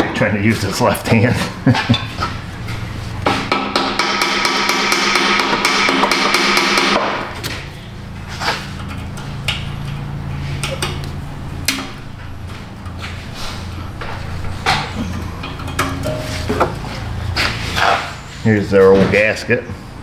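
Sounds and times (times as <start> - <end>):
hammer striking metal: 3.2 - 7.3.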